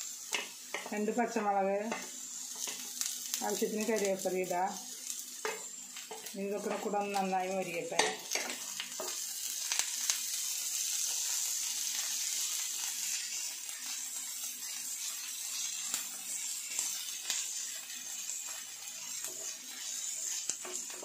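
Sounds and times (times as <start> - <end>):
vegetables sizzling in oil: 0.0 - 21.0
wooden spatula scraping and tapping: 19.2 - 21.0.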